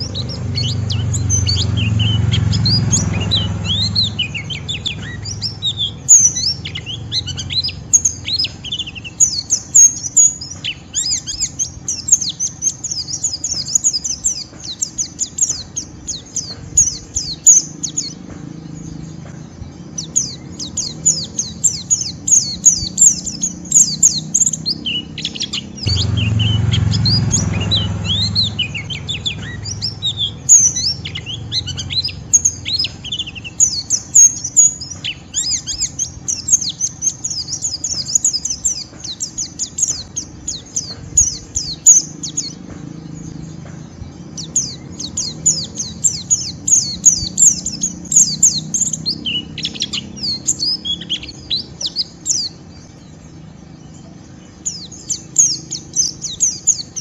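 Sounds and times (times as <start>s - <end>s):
bird chattering high chirps: 0.0s - 18.2s, 19.2s - 42.6s, 44.3s - 53.0s
low rumble: 25.6s - 33.9s.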